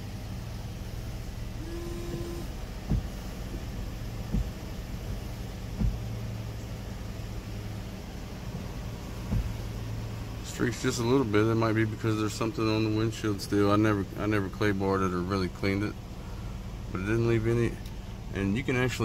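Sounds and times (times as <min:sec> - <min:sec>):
washer pump whine: 0:00.0 - 0:13.4
car engine idling hum: 0:00.0 - 0:19.0
windshield wipers thumping: 0:00.0 - 0:19.0.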